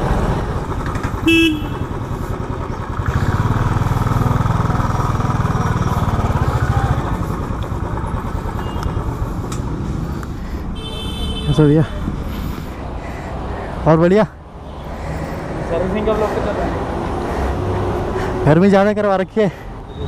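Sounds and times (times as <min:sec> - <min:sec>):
motorcycle engine thumping: 0:00.5 - 0:06.4
horn toot: 0:01.2 - 0:01.9.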